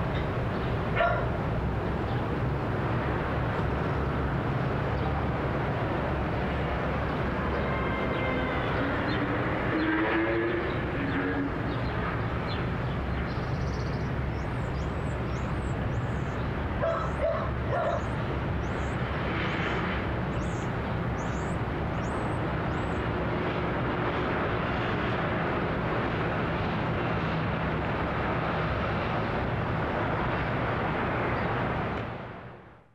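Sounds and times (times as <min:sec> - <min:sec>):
distant traffic rumble: 0:00.0 - 0:32.9
dog barking: 0:01.0 - 0:01.4, 0:16.8 - 0:18.1.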